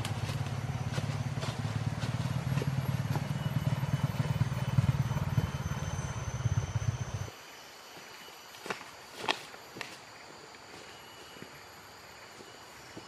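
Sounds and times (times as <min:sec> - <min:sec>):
small engine running: 0:00.0 - 0:07.3.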